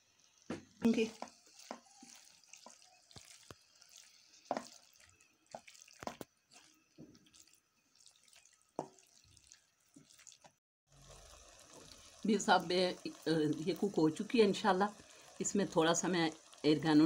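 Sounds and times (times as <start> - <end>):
spatula tapping and scraping pan: 0.5 - 3.6, 4.4 - 4.9, 8.8 - 9.1
wet squelching: 1.3 - 10.6.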